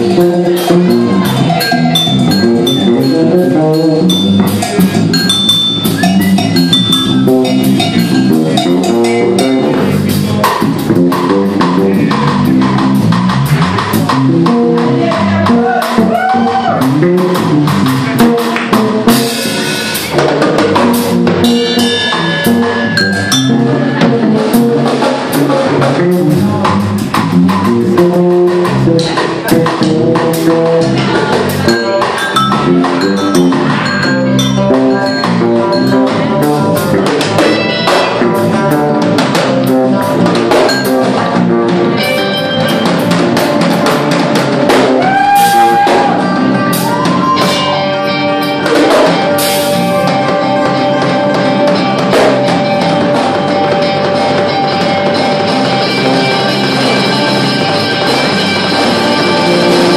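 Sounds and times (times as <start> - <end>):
drum kit steady beat: 0.0 - 59.9
rock band playing: 0.0 - 59.9.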